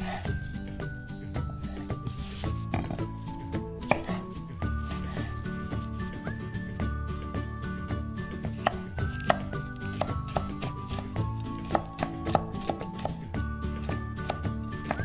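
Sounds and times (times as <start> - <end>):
soft background music: 0.0 - 15.0
knife chopping on wooden board: 3.8 - 4.4, 8.5 - 13.2, 13.9 - 15.0.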